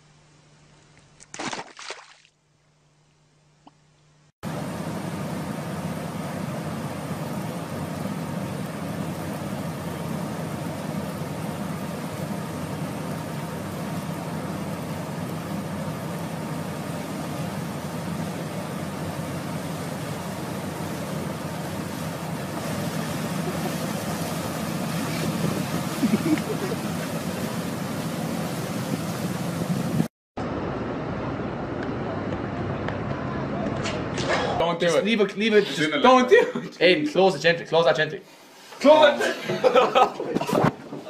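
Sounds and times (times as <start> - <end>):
heavy engine running: 4.4 - 34.9
water jet gushing onto ground: 5.7 - 30.1.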